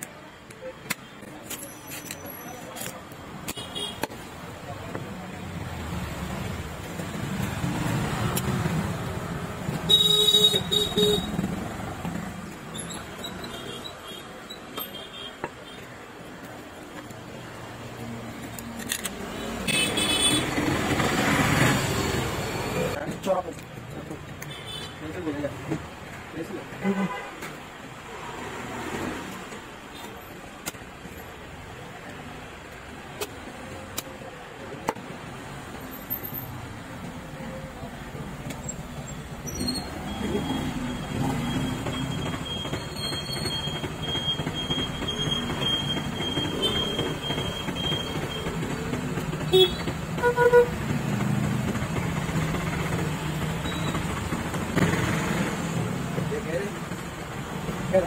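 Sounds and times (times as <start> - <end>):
traffic noise: 0.0 - 58.0
vehicle horn beeping: 9.9 - 11.4, 19.7 - 20.5, 49.5 - 50.8.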